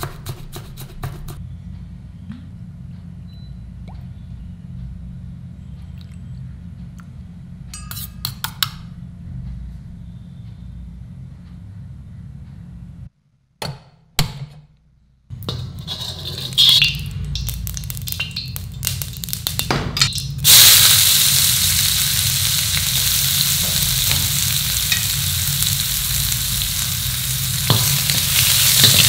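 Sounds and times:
steady low hum: 0.0 - 13.3, 15.0 - 29.0
spoon clinking against steel bowl: 7.8 - 8.7
oil crackling in a wok: 15.4 - 29.0.

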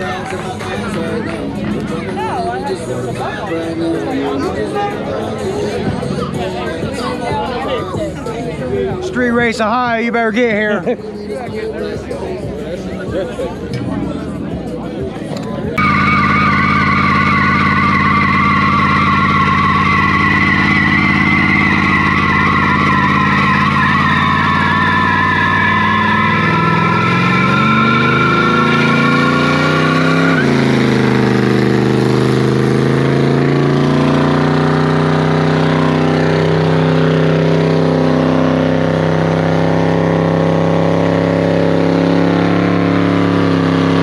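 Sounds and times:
car engine revving: 12.6 - 44.0
tyres squealing: 15.8 - 31.2.

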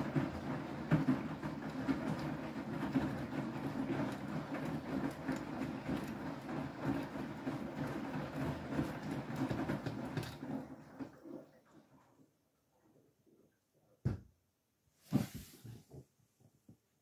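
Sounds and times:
washing machine drum sloshing: 0.0 - 12.8.

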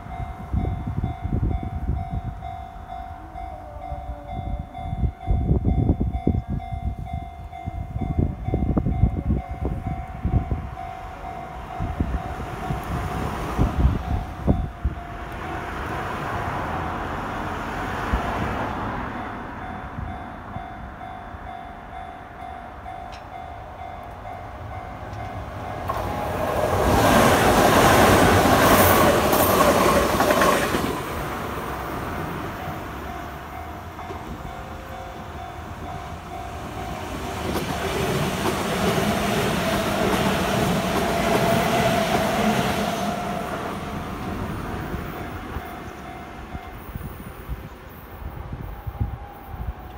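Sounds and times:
electric train passing: 0.0 - 49.9
level-crossing alarm ringing: 32.6 - 43.6.

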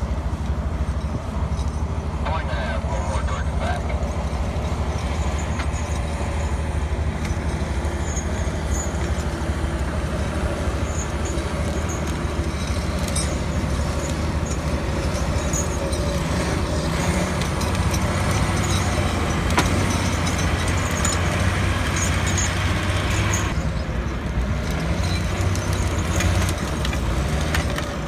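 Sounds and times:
diesel engine under load: 0.0 - 28.0.

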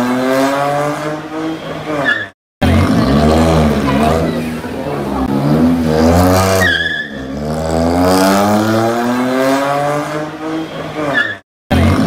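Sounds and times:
car engine accelerating hard: 2.6 - 12.0.

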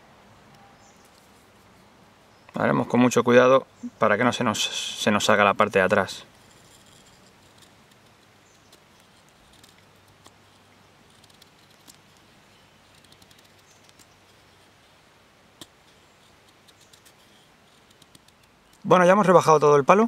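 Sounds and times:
knife scraping wood: 6.3 - 12.2, 15.6 - 18.8.

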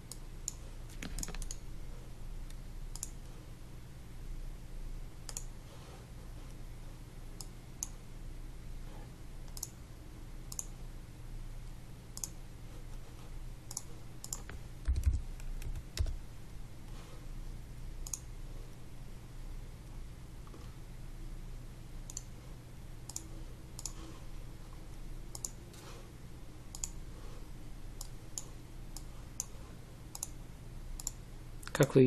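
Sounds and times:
computer mouse clicks: 0.0 - 1.7, 2.5 - 3.3, 5.3 - 5.5, 9.4 - 9.8, 10.5 - 10.8, 12.1 - 12.4, 13.6 - 16.2, 18.0 - 18.3, 22.1 - 22.4, 23.0 - 24.0, 25.3 - 25.9, 26.7 - 27.0, 28.0 - 30.4, 31.0 - 31.2
steady low hum: 0.0 - 32.0
key presses: 13.7 - 16.2.

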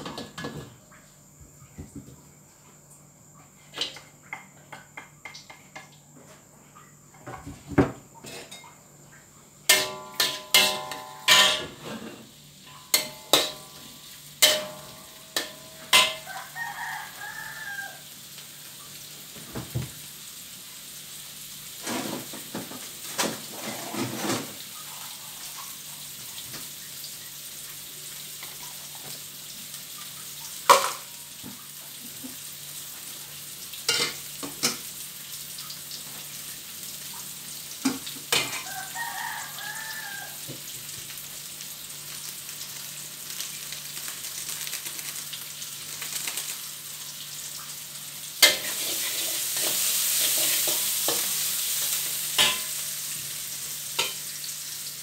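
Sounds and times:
food sizzling in hot oil: 7.2 - 55.0
utensil clanking on metal wok: 9.7 - 16.6, 30.7 - 31.1, 37.9 - 38.8, 48.4 - 52.8, 54.0 - 54.3
rooster crowing: 14.5 - 18.2, 38.5 - 40.6.

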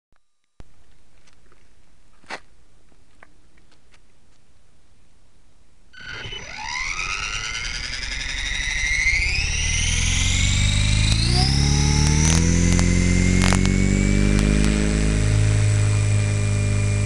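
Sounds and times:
helicopter motor whine rising: 6.0 - 17.0
small clicks: 9.1 - 14.8.

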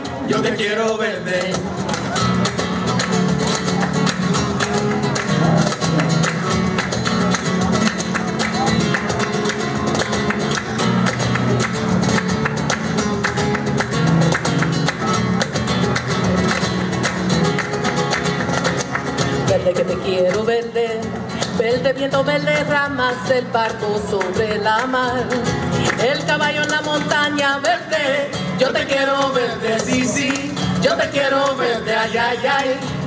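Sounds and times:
acoustic guitar strumming: 0.0 - 33.0
hand clapping: 1.4 - 19.5, 24.1 - 27.8, 28.7 - 31.6.

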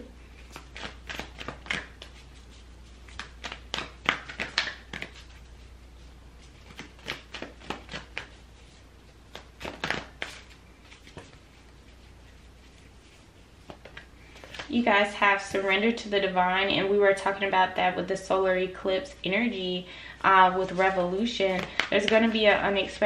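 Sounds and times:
cards being shuffled: 0.3 - 14.8, 20.6 - 22.4.

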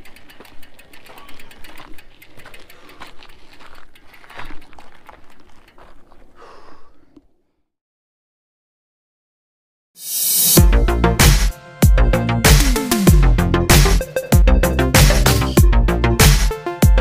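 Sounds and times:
mountain bike rattling on rocks: 0.0 - 6.4.

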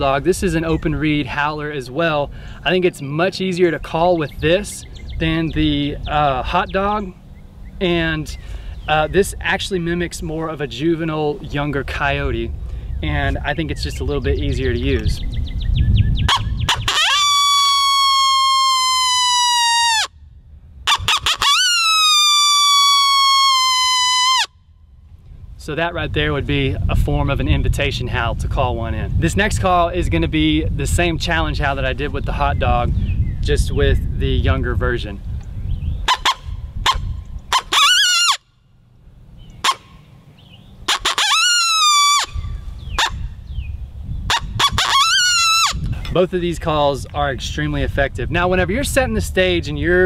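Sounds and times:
coyote call howl: 16.3 - 20.1, 20.9 - 24.5
coyote call barks: 36.1 - 38.4, 39.6 - 40.0, 42.9 - 43.2.

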